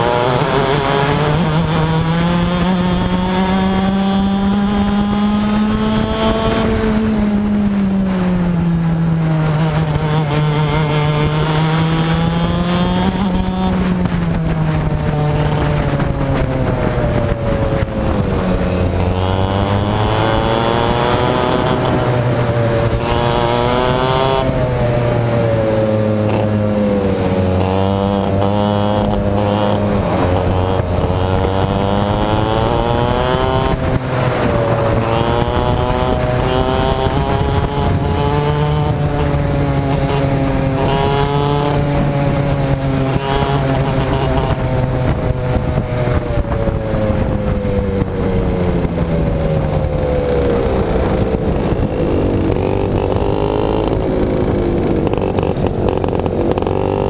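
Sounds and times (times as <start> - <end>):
nearby kart engines: 0.0 - 57.0
two-stroke kart engine revving: 0.0 - 57.0.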